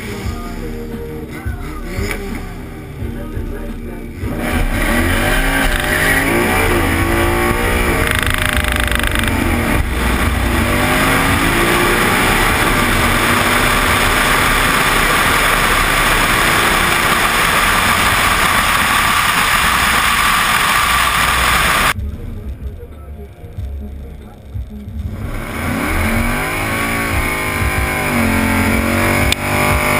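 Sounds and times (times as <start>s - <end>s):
car engine at full throttle: 4.2s - 22.0s, 24.6s - 29.9s.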